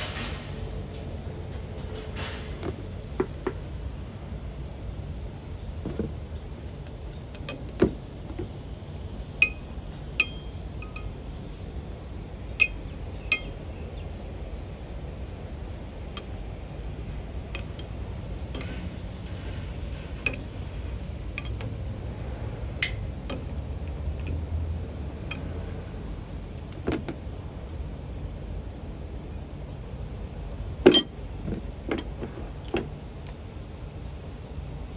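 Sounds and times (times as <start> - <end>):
steady low hum: 0.0 - 34.9
spanner clinking on metal: 6.8 - 8.3, 9.4 - 11.2, 12.5 - 13.8, 16.1 - 25.8, 30.8 - 32.9.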